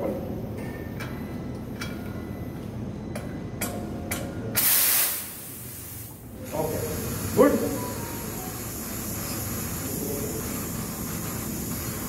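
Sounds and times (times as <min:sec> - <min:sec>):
loud hiss of gas: 0:04.6 - 0:12.0.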